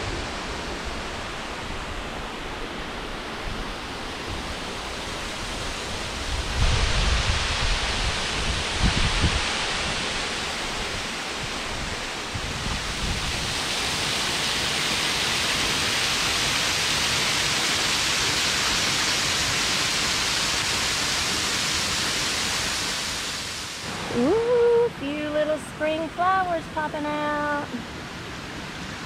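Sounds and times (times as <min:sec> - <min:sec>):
waterfall rushing onto rocks: 0:03.9 - 0:24.4.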